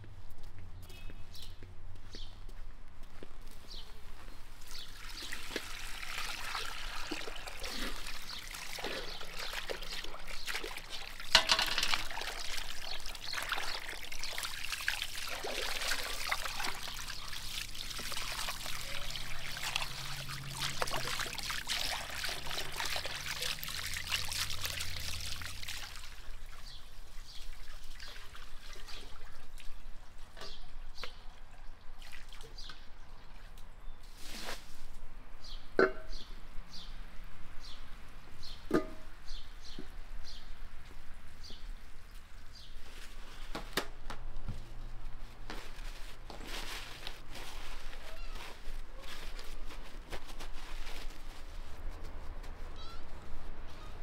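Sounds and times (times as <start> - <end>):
water pouring and splashing: 4.6 - 30.5, 31.9 - 32.8.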